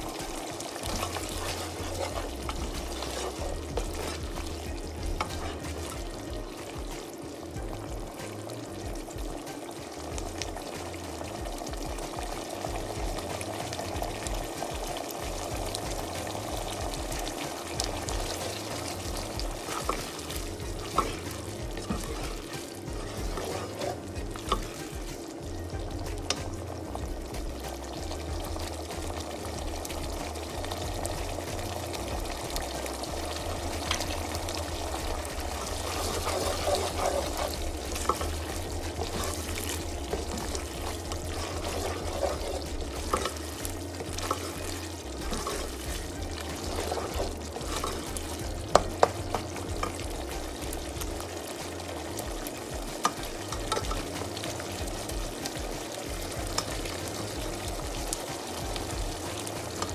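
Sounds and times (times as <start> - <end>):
sauce sizzling in a frying pan: 0.0 - 59.9
spatula scraping through sauce: 0.2 - 6.2, 17.8 - 24.9, 32.8 - 50.2.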